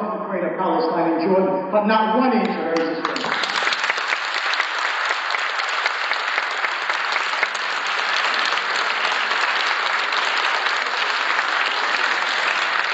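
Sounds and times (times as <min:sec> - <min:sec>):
audience applauding: 0:03.0 - 0:12.9.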